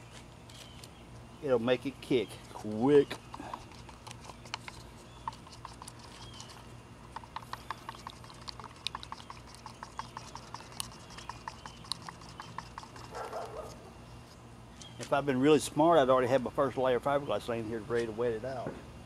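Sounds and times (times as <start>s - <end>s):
stir stick clicking in plastic cup: 3.2s - 13.2s.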